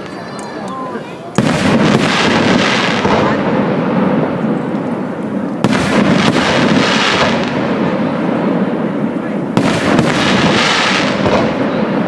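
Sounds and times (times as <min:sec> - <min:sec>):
fireworks bursting rumble: 0:00.0 - 0:12.0
sharp firework bang: 0:01.4 - 0:04.4, 0:05.6 - 0:08.6, 0:09.5 - 0:12.0.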